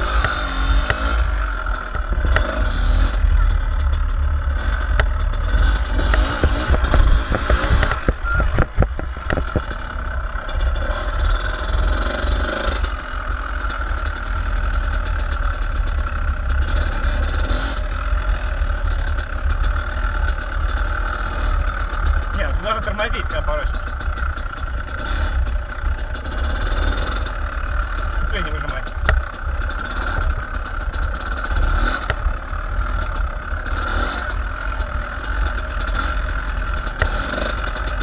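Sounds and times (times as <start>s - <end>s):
heavy low rumble: 0.0s - 12.0s, 17.8s - 31.3s
dirt bike engine running: 0.0s - 38.0s.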